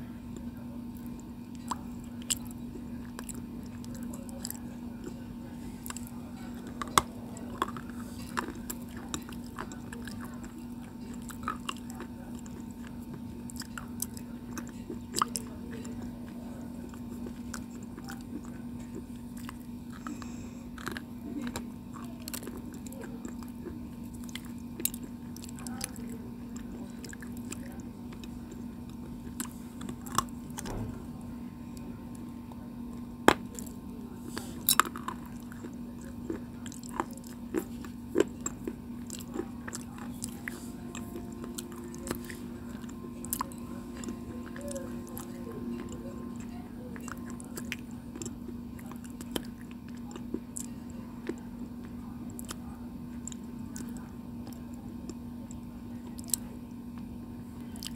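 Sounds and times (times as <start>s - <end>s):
steady low hum: 0.0s - 57.9s
stone being chewed crunching: 16.8s - 25.6s, 34.4s - 51.4s.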